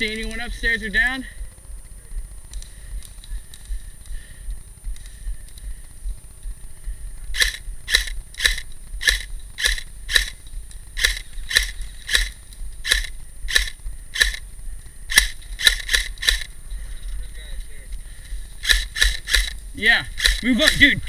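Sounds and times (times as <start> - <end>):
airsoft gun firing single shots: 7.3 - 14.5, 15.1 - 16.5, 18.6 - 19.6, 20.2 - 21.0.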